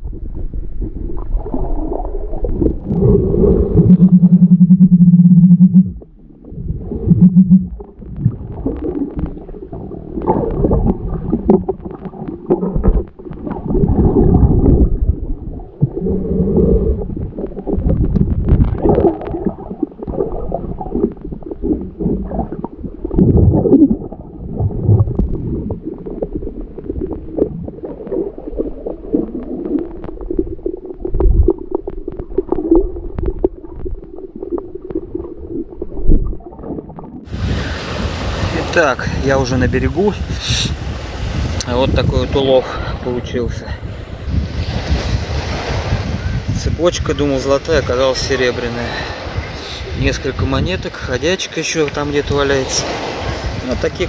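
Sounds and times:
underwater gurgling and rumbling: 0.0 - 50.9
small underwater clicks and knocks: 7.1 - 16.0, 17.0 - 24.0, 24.8 - 37.3.

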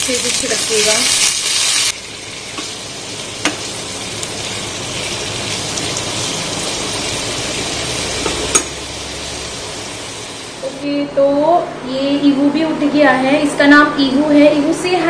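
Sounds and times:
vegetables sizzling in oil: 0.0 - 10.8.

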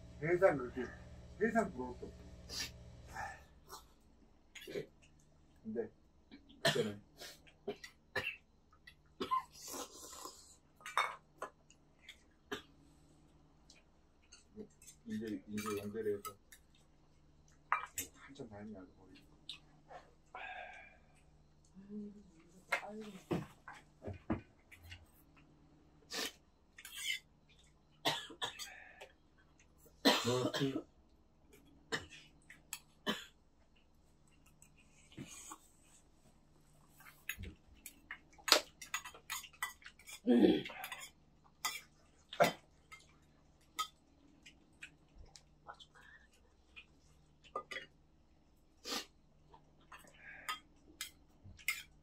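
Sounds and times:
eating sounds: 6.3 - 12.9, 19.1 - 28.0, 36.7 - 52.0
person coughing: 6.6 - 7.0, 30.0 - 30.8, 40.3 - 40.7
chopsticks clinking on metal bowls: 14.3 - 16.7, 37.2 - 41.9.

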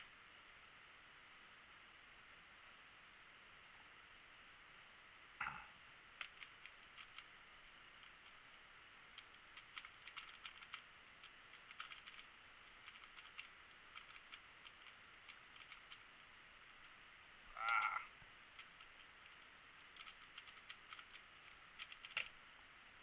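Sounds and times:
plastic puzzle cube clicking: 6.2 - 7.3, 9.1 - 22.4.

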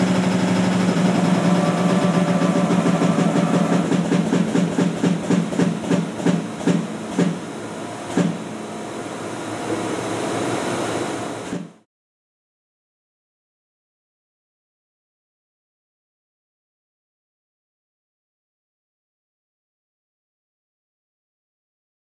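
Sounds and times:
hydraulic machinery throbbing: 0.0 - 11.8
machinery hum: 0.0 - 11.9.

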